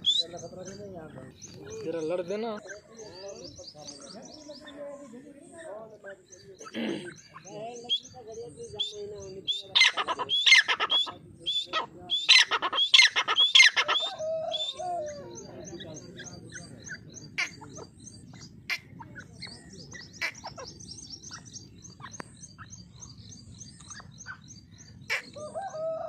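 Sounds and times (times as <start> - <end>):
bird harsh rapid calls: 0.0 - 4.7, 5.5 - 26.0
bird wavering cry: 7.1 - 26.0.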